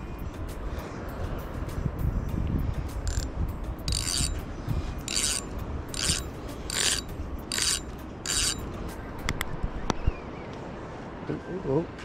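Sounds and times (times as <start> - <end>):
rasping rub: 3.9 - 8.6.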